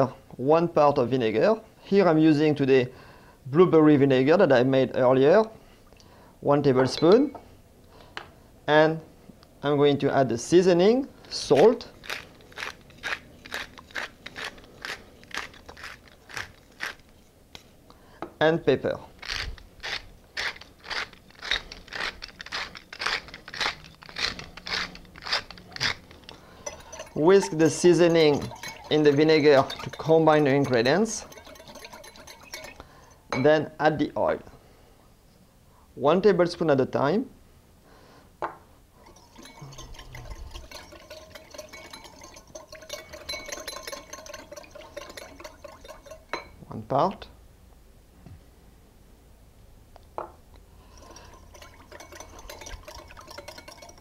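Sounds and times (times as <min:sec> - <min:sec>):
pepper mill grinding: 0:11.4 - 0:17.2, 0:19.2 - 0:33.2, 0:39.0 - 0:46.6, 0:50.8 - 0:54.0
wire whisk ticking against glass bowl: 0:25.5 - 0:33.4, 0:39.0 - 0:46.6, 0:50.9 - 0:54.0.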